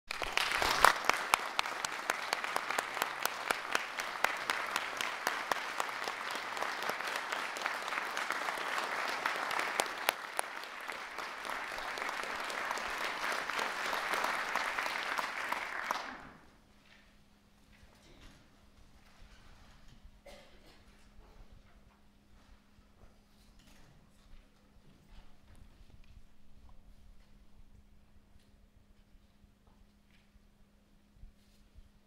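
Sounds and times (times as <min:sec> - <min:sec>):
audience applauding: 0:00.1 - 0:16.5.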